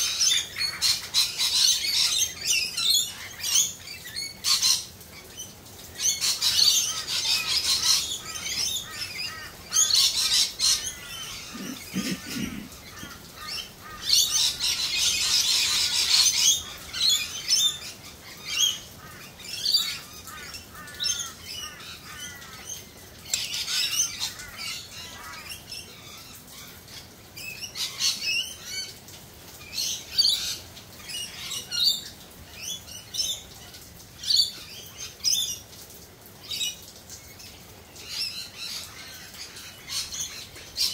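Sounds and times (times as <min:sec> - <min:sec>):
birds chirping: 0:00.0 - 0:40.9
low bird call: 0:10.8 - 0:13.2.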